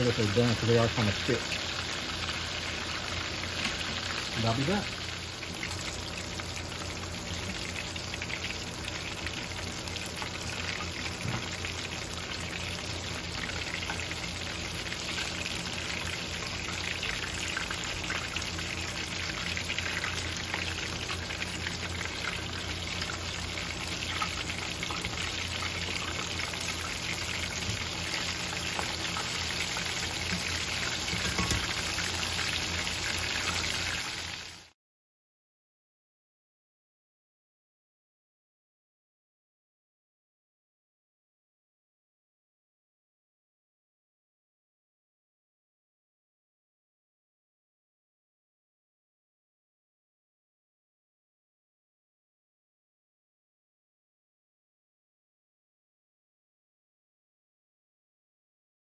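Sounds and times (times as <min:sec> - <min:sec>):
chicken deep-frying in oil: 0:00.0 - 0:34.8.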